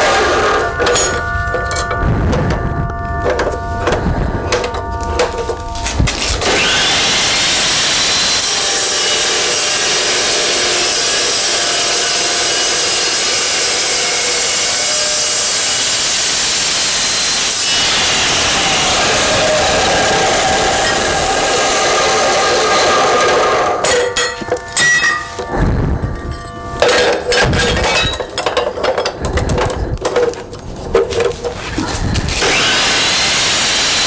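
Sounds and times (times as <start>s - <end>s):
chop saw cutting steel: 0.0s - 1.2s, 5.8s - 24.1s, 32.3s - 34.0s.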